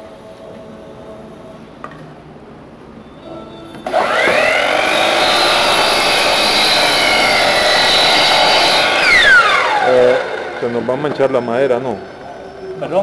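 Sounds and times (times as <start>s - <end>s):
saw blade spinning down: 3.8s - 11.4s
miter saw motor whining: 3.8s - 11.9s.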